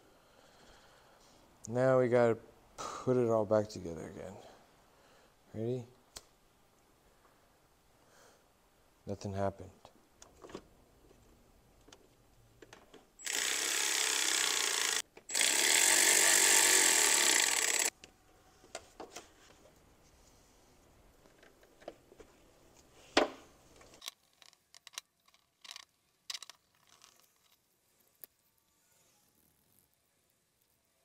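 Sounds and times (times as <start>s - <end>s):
clicks and rattles of parts: 23.8s - 27.6s.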